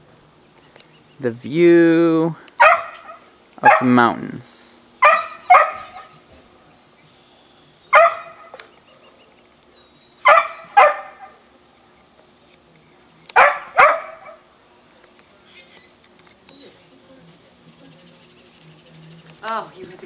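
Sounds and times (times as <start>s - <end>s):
dog barking: 2.6s - 3.9s, 5.0s - 6.2s, 7.9s - 8.6s, 10.2s - 11.4s, 13.4s - 14.4s.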